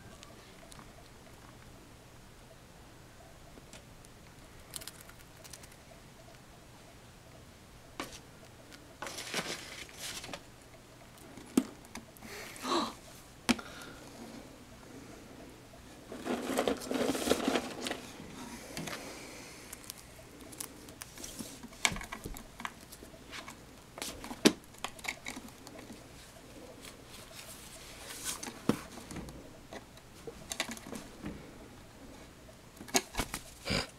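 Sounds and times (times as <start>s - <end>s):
bird beak crunching pretzel: 4.6s - 5.8s.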